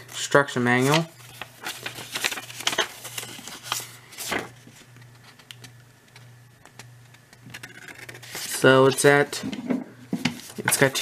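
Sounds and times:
low steady hum: 0:00.0 - 0:11.0
paper pages rustling: 0:00.0 - 0:11.0.

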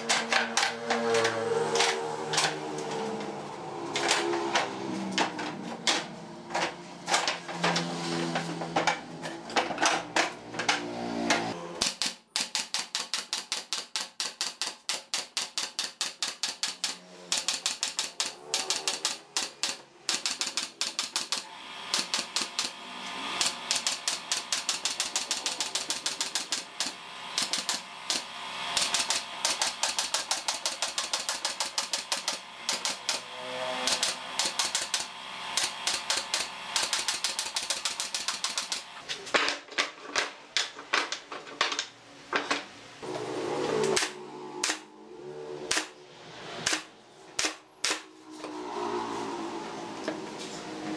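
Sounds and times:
pneumatic nail gun firing: 0:00.0 - 0:03.2, 0:09.6 - 0:39.6, 0:43.1 - 0:44.9, 0:45.6 - 0:48.1.

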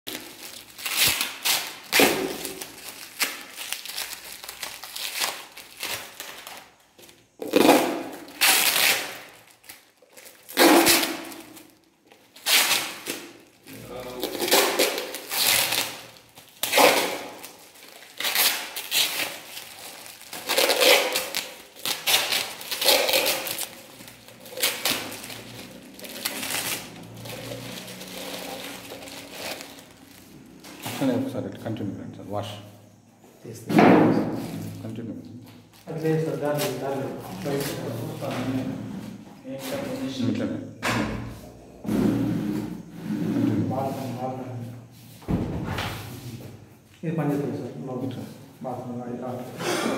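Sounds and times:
paper and plastic crinkling: 0:00.1 - 0:31.2, 0:34.3 - 0:40.2.

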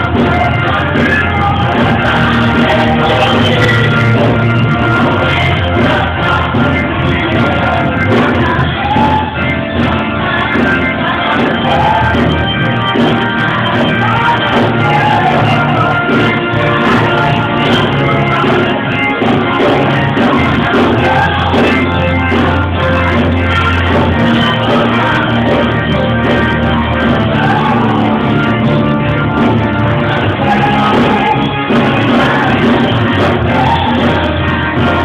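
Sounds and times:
church choir singing: 0:00.0 - 0:35.0
instrumental backing with bass: 0:00.0 - 0:35.0.

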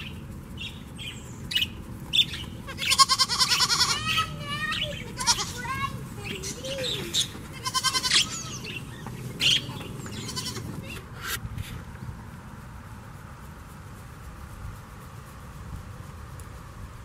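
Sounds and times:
goat bleating: 0:02.6 - 0:11.1.

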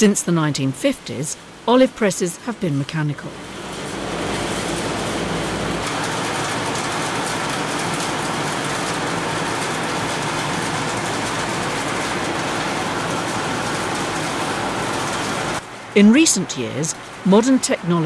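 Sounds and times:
olive mill machinery clattering: 0:03.4 - 0:15.6.

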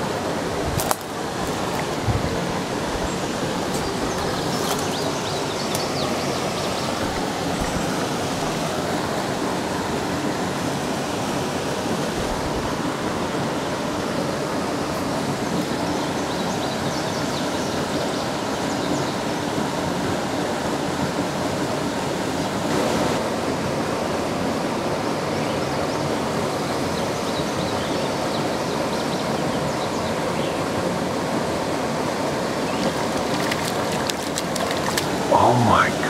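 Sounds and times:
water rushing through spillway: 0:00.0 - 0:16.0, 0:30.6 - 0:36.0
fish splashing at surface: 0:32.8 - 0:35.3.

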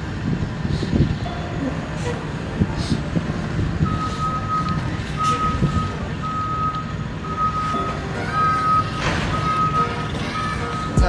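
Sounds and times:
reversing alarm beeps: 0:03.8 - 0:11.0.

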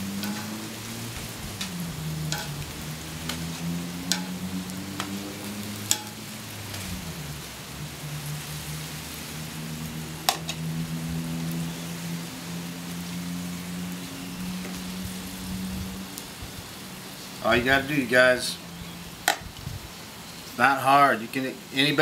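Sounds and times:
low droning hum: 0:00.0 - 0:16.0
food sizzling on griddle: 0:00.0 - 0:22.0
metal spatula scraping griddle: 0:00.1 - 0:00.6, 0:02.3 - 0:02.7, 0:03.3 - 0:04.4.

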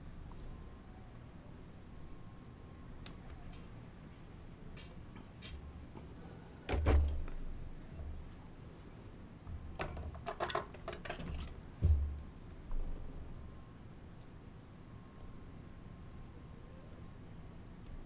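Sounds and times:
sharp knocks with dull thump: 0:11.8 - 0:12.8.

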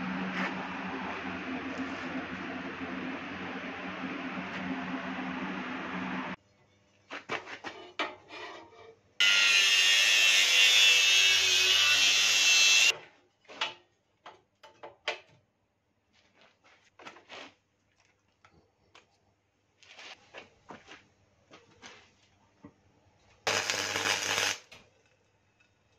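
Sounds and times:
power tool running: 0:09.2 - 0:12.9.

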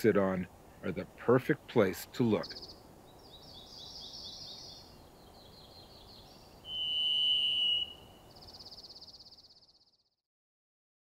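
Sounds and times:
high quick bird trills: 0:06.6 - 0:09.0
thrush whistled note: 0:06.7 - 0:08.2.

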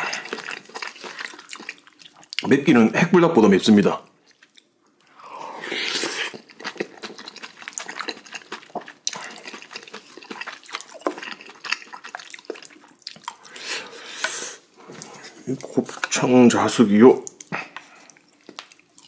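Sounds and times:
wet chewing and mouth smacking: 0:00.0 - 0:02.6, 0:04.2 - 0:05.2, 0:05.9 - 0:13.6, 0:17.2 - 0:19.0.

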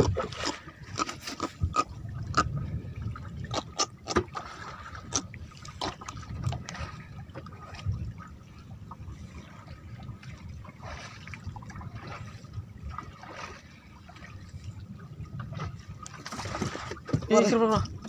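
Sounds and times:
water lapping against boat hull: 0:00.0 - 0:18.0.

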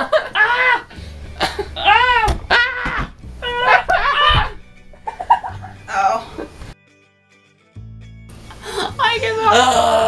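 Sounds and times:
young people shrieking playfully: 0:00.1 - 0:00.9, 0:01.8 - 0:04.6.

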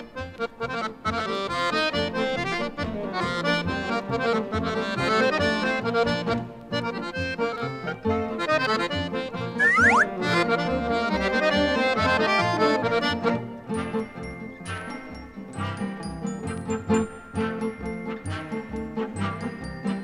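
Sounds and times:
accordion music with steady beat: 0:00.0 - 0:20.0.

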